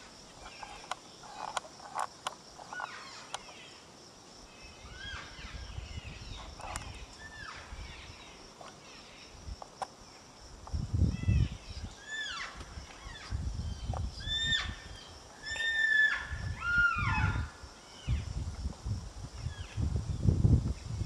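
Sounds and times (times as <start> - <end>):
high insect hum: 0.0 - 21.0
elk squealing chirps: 12.0 - 13.3, 14.2 - 17.5.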